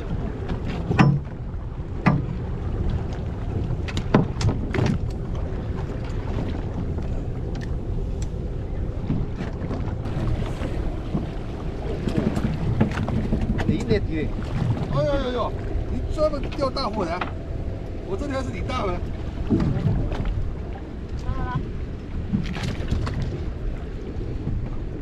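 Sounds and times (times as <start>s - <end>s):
sea rumble: 0.0s - 25.0s
wind on microphone: 0.0s - 25.0s.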